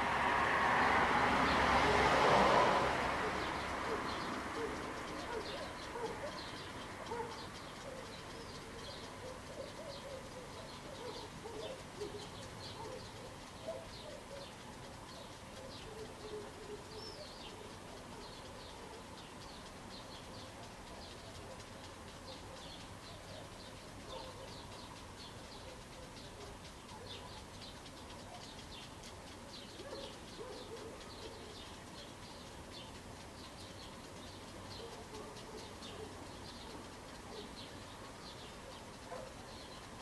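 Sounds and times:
birds chirping: 0:00.0 - 0:40.0
dove cooing: 0:03.2 - 0:14.5, 0:15.2 - 0:19.2, 0:24.1 - 0:24.6.

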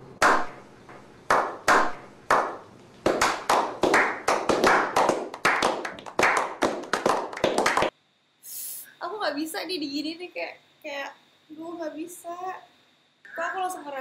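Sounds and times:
people clapping: 0:00.2 - 0:00.5, 0:01.3 - 0:07.9.

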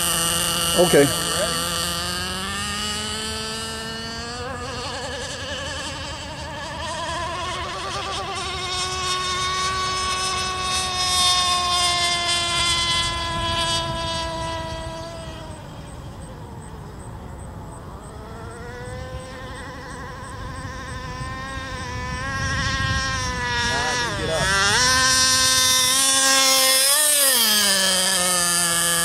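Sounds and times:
model boat engine whining: 0:00.0 - 0:29.0.

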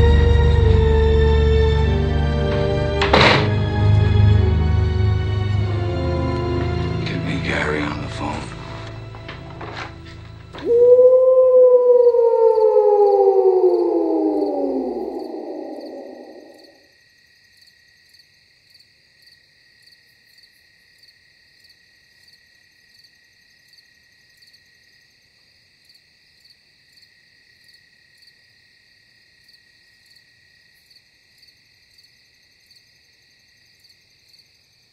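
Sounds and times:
crickets chirping: 0:04.4 - 0:34.9
loud falling wail: 0:10.6 - 0:16.8.

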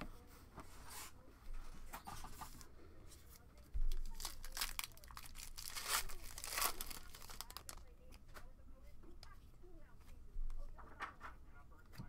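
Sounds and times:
foil wrapper tearing and crinkling: 0:03.8 - 0:07.8.

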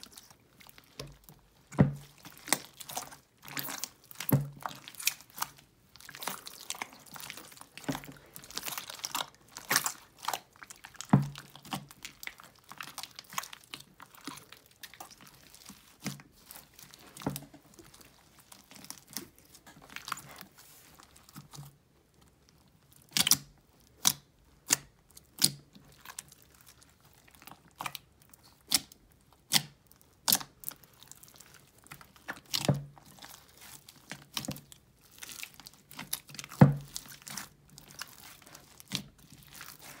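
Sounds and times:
slime popping and crackling: 0:00.0 - 0:40.0
slime squishing: 0:00.0 - 0:40.0.

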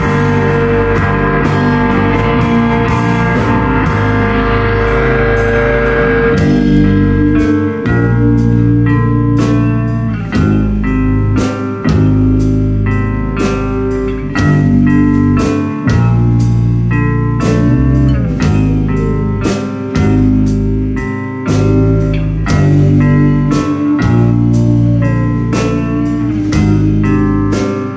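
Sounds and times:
rock band playing: 0:00.0 - 0:27.9.

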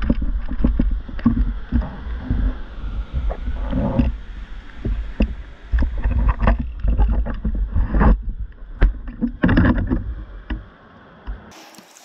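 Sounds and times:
low rumble: 0:00.0 - 0:09.1.

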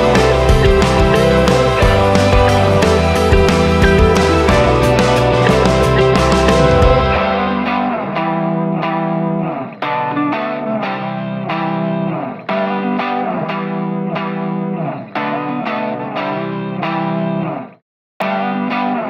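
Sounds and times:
band with drums and bass: 0:00.0 - 0:08.0
electric guitar picked chords: 0:00.0 - 0:19.0.

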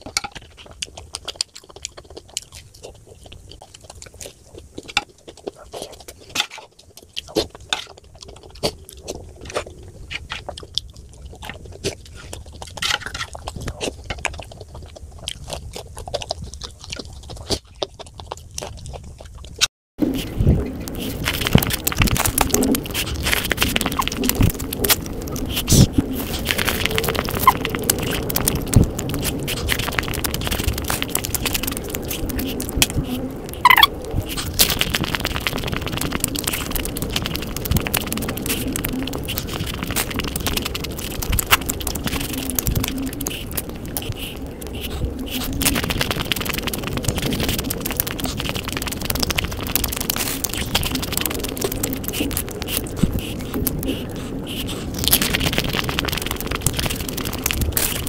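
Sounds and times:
small crackles: 0:00.0 - 0:58.0
wet chewing: 0:00.0 - 0:58.0
crisp shells crunching: 0:20.0 - 0:58.0.

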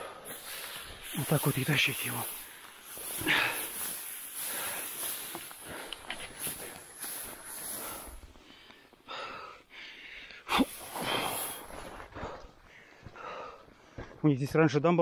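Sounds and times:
man breathing hard: 0:00.0 - 0:01.1, 0:02.3 - 0:14.2
dry grass rustling: 0:00.3 - 0:09.0.

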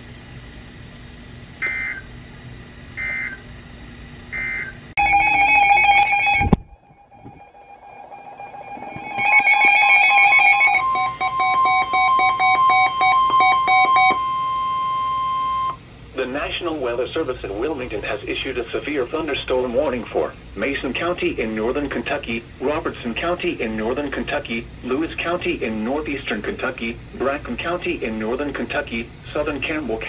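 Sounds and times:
radio alarms beeping: 0:01.6 - 0:02.0, 0:03.0 - 0:03.4, 0:04.4 - 0:15.8
steady warning alarm tone: 0:01.6 - 0:02.1, 0:03.0 - 0:03.4, 0:04.3 - 0:15.8.

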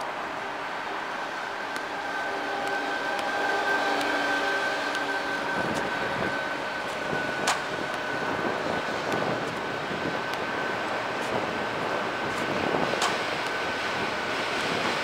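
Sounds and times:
distant traffic: 0:00.0 - 0:15.0
thin high whine: 0:00.0 - 0:15.0
sharp click: 0:13.0 - 0:13.2.

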